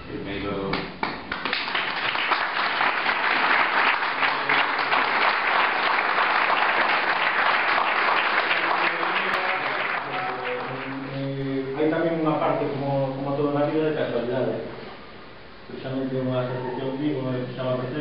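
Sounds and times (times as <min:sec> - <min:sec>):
audience applauding: 0:01.0 - 0:11.2.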